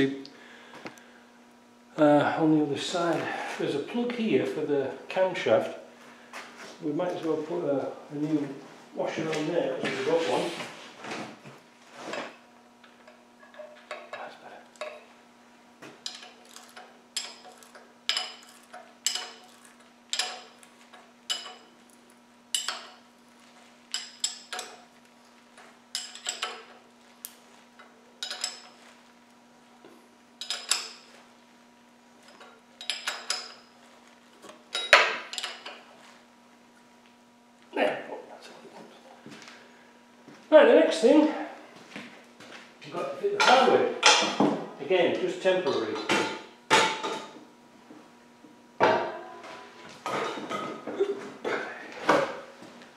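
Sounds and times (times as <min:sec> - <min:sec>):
steady low hum: 0:00.0 - 0:52.9
spanner clinking on metal: 0:16.0 - 0:21.8, 0:22.5 - 0:23.0, 0:23.9 - 0:24.9, 0:25.9 - 0:26.8, 0:27.8 - 0:28.8, 0:30.4 - 0:31.1, 0:32.3 - 0:33.7, 0:34.7 - 0:35.8.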